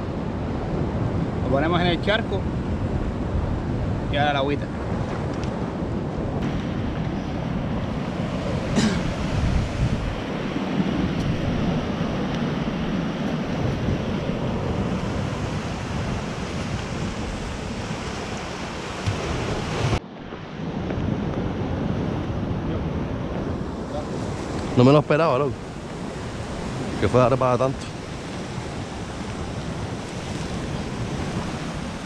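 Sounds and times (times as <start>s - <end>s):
wind on microphone: 0.0s - 32.0s
waves breaking on rocky shore: 6.4s - 32.0s.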